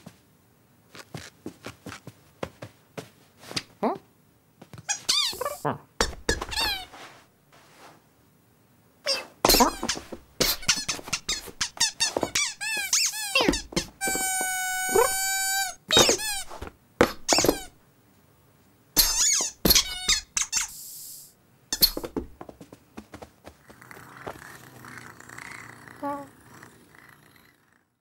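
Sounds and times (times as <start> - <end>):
squeaky toy squeaking: 4.9 - 5.6, 6.4 - 6.9, 9.1 - 16.5, 19.0 - 20.9.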